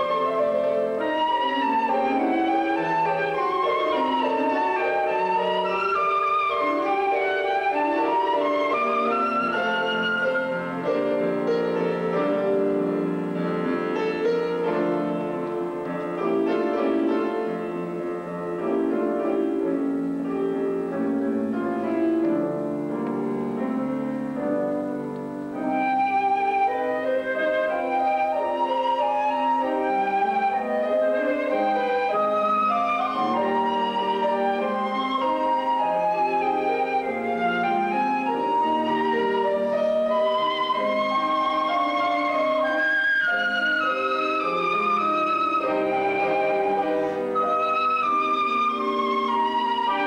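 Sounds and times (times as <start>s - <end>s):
flute melody: 0.0s - 50.0s
piano chords: 0.0s - 50.0s.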